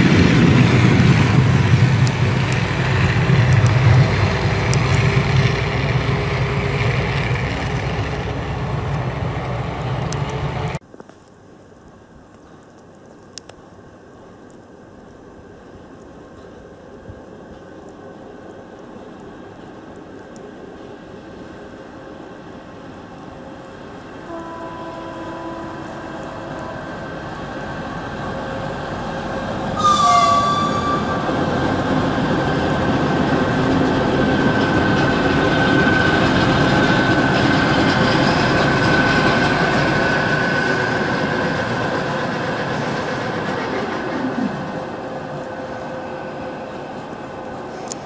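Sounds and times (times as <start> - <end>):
diesel locomotive passing: 0.0 - 10.8, 15.5 - 48.0
high whine: 23.8 - 48.0
locomotive horn blast: 24.2 - 27.2, 29.8 - 31.6.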